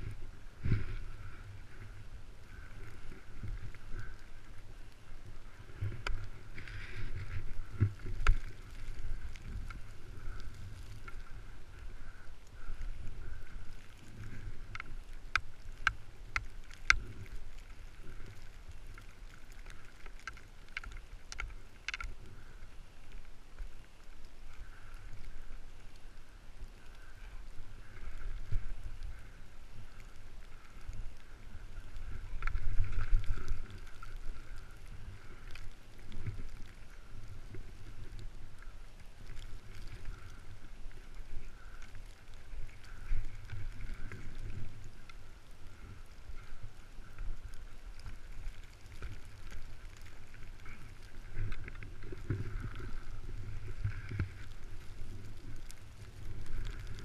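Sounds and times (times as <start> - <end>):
skis sliding through powder snow: 0.0 - 57.0
wind rumble on microphone: 0.0 - 57.0.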